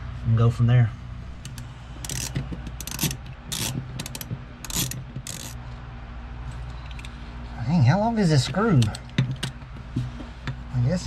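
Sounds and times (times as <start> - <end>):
screw rasping clicks: 1.4 - 5.6.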